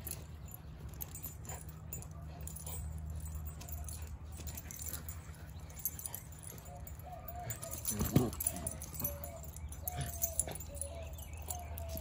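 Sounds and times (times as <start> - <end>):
collar tags jingling: 0.0 - 12.0
low steady hum: 0.0 - 12.0.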